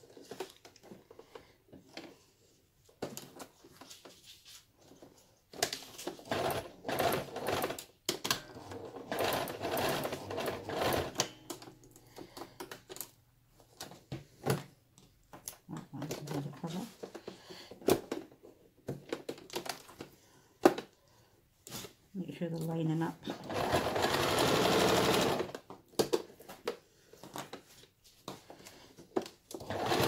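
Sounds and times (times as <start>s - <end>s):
sewing machine stitching: 6.1s - 11.7s, 23.2s - 25.6s, 29.6s - 30.0s.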